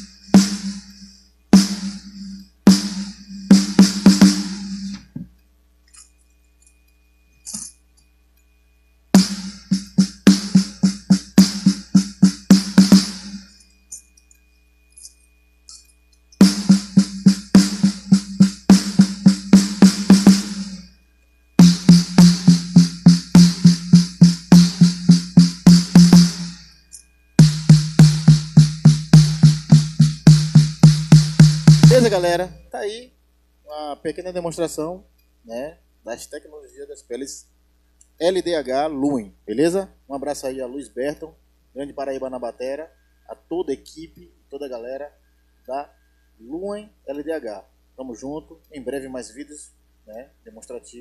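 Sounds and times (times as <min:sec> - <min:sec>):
snare drum struck with sticks: 0:09.2 - 0:13.4, 0:16.4 - 0:20.8, 0:27.4 - 0:32.4.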